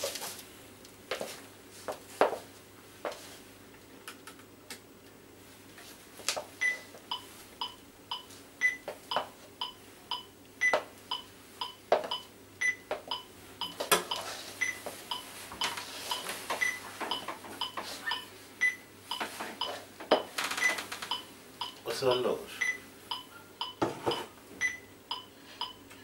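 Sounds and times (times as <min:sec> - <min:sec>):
electronic metronome beeping: 0:06.6 - 0:19.8, 0:20.6 - 0:25.8.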